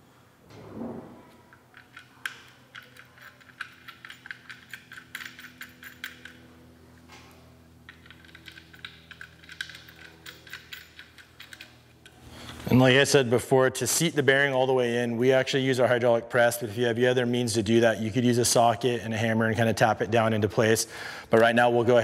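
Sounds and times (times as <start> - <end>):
faint steady hum: 0.0 - 22.0
small screws clicking on metal: 1.5 - 6.5, 7.8 - 12.2.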